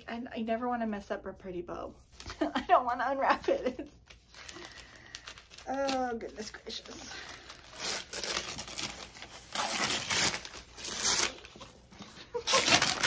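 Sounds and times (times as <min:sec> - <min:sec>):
paper wrapping crinkling: 0:03.4 - 0:13.0.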